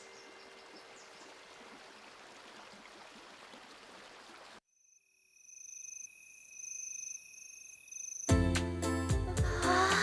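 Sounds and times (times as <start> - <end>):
night insects chirring: 4.7 - 8.3.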